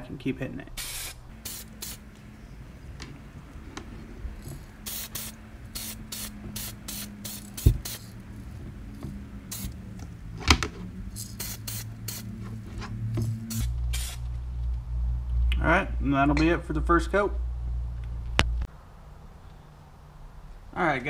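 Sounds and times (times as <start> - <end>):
low hum: 0.0 - 20.8
spray can hissing: 0.8 - 2.1, 4.5 - 8.2, 9.5 - 9.8, 11.1 - 12.3, 13.2 - 14.3.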